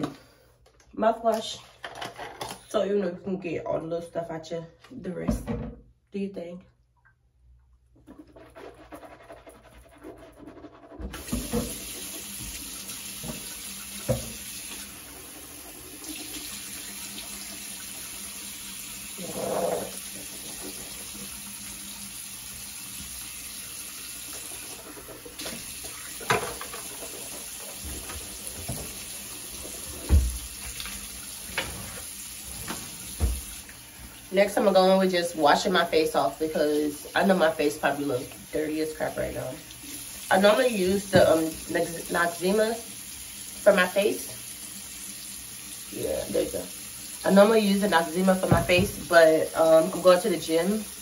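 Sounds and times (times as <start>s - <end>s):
knocks and clatters at sink: 10.0s - 14.5s, 19.2s - 21.0s, 24.4s - 32.0s, 32.6s - 33.6s, 40.8s - 41.6s, 48.2s - 49.3s
sink tap running into basin: 11.0s - 36.6s, 37.2s - 51.0s.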